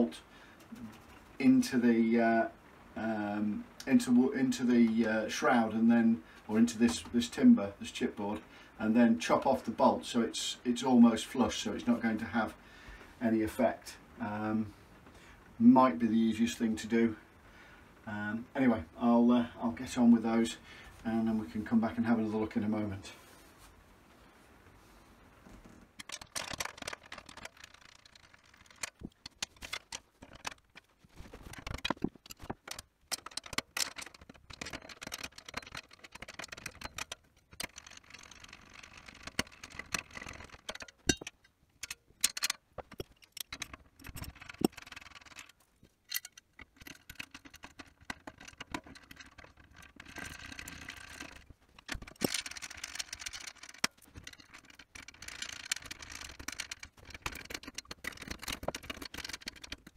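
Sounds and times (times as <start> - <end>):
metal clinks and rattles: 26.0 - 59.9.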